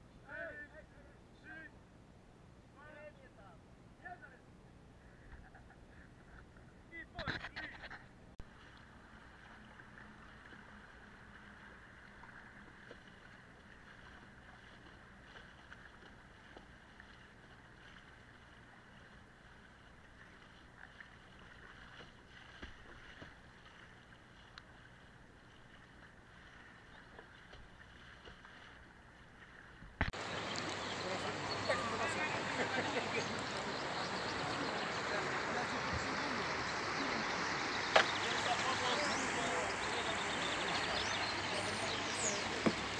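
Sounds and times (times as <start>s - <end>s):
busy outdoor sound: 30.0s - 42.9s
fast river water rushing: 30.1s - 42.9s
light knocks on kayak: 42.6s - 42.9s.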